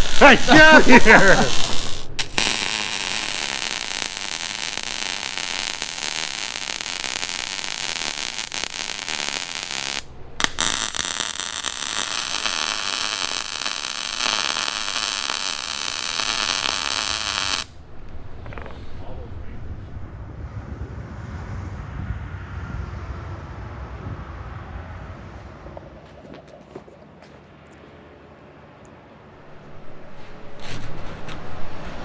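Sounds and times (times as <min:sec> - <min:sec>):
welding arc hissing: 0:00.0 - 0:17.8.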